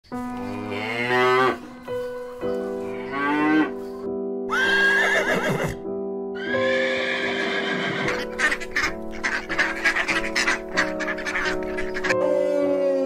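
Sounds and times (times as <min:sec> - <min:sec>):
background music: 0:00.0 - 0:13.0
horse whinnying: 0:04.5 - 0:05.8, 0:06.4 - 0:08.4.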